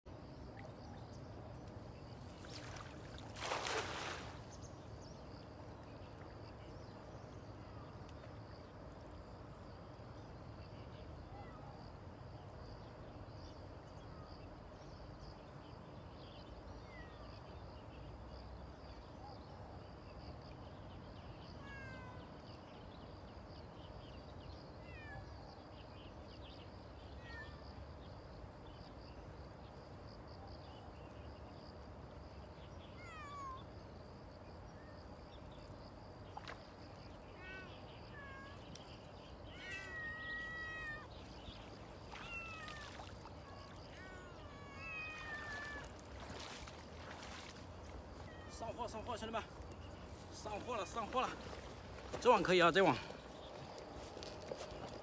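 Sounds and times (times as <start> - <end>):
cats meowing: 21.6 - 22.2, 24.8 - 25.2, 33.0 - 33.6, 37.4 - 38.8, 39.5 - 41.1, 42.1 - 46.0, 48.2 - 48.8.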